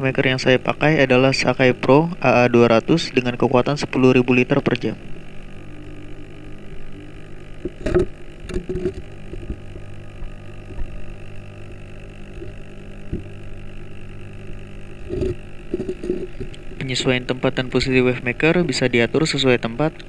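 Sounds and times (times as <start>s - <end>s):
underwater pump humming: 0.0s - 20.0s.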